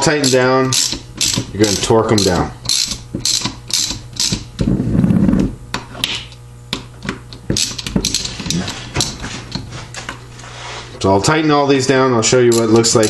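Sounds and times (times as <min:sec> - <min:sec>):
ratchet pawl clicking: 0:00.0 - 0:04.6, 0:07.5 - 0:09.1, 0:12.4 - 0:13.0
sharp metallic clicks and knocks: 0:00.0 - 0:04.7, 0:05.7 - 0:10.2, 0:12.5 - 0:13.0.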